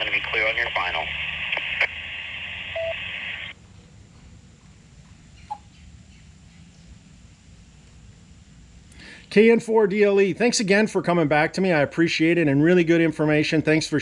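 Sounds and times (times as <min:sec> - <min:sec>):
radio click: 0:00.0 - 0:03.5
radio hiss: 0:00.0 - 0:03.6.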